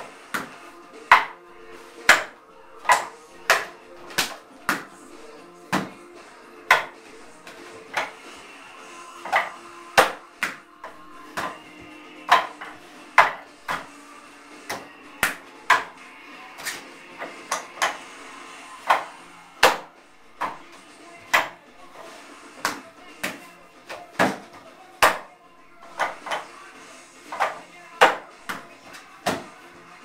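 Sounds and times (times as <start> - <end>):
hands knocking wooden dummy: 0.3 - 1.4, 5.7 - 6.0, 6.7 - 7.0, 11.4 - 11.6, 12.3 - 13.9, 27.3 - 29.5.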